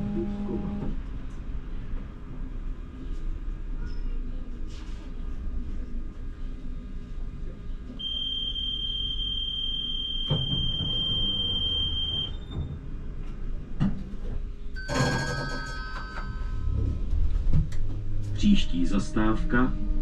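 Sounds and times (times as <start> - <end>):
high warning beep: 8.0 - 12.5.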